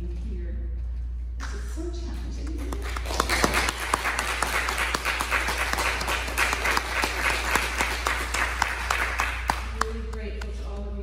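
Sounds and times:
crowd applauding: 2.5 - 10.6.

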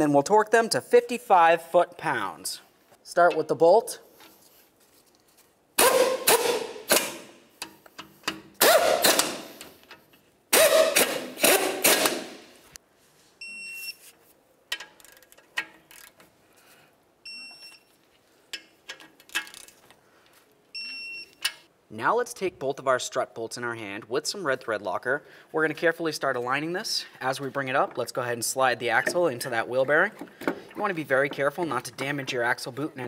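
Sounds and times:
torque wrench clicking: 14.7 - 16.1
short high beeps: 20.8 - 21.4.

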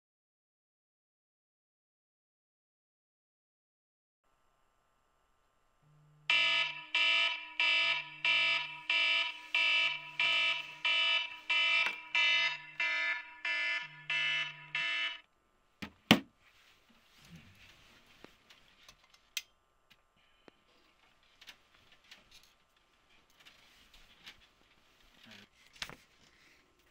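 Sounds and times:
smartphone alarm ringing: 6.3 - 15.2.

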